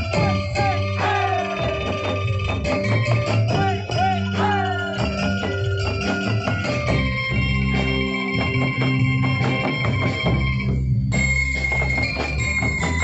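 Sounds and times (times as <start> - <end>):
hand drums in fast rhythm: 0.0 - 13.0
music with held tones: 0.0 - 13.0.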